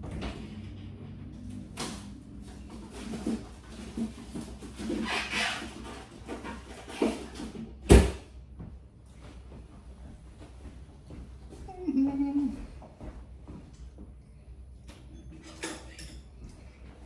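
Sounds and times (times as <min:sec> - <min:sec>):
small knocks and rustles: 0:00.0 - 0:07.9.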